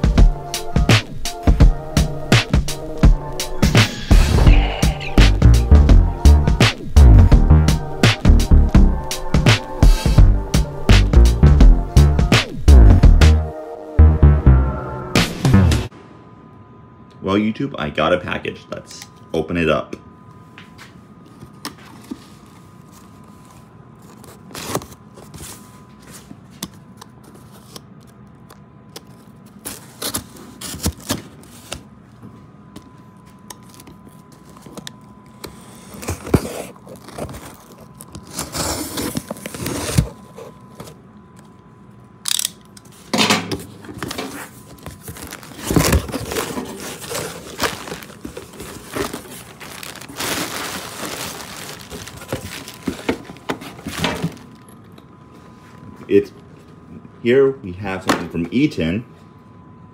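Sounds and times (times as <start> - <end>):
packaging crinkling: 33.5 - 40.9, 43.8 - 54.7
tape tearing: 35.7 - 40.2, 44.0 - 54.6.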